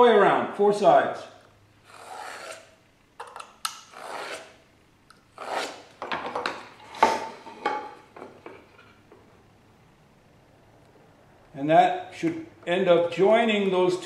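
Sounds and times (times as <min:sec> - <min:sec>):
marking knife scratching wood: 0:01.9 - 0:02.8, 0:03.9 - 0:04.6, 0:05.4 - 0:05.9.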